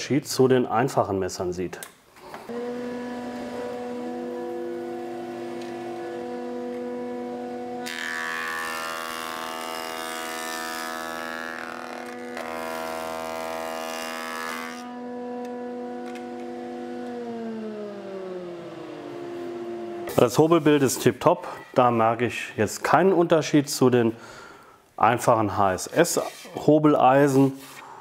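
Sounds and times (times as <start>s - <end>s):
board being planed: 2.5s - 18.3s
planer humming: 2.5s - 21.1s.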